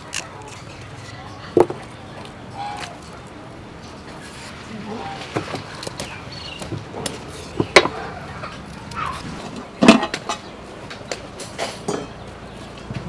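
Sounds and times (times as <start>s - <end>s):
knife cutting vegetables: 0.0s - 1.2s.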